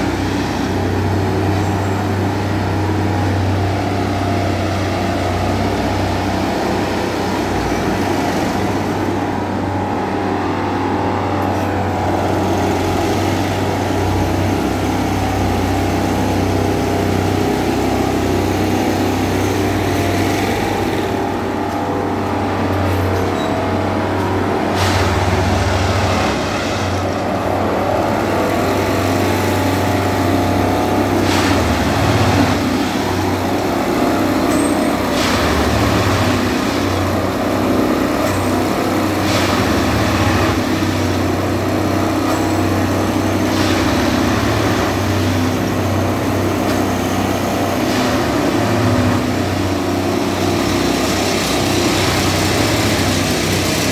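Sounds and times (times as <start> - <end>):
track machine engine running: 0.0 - 53.9.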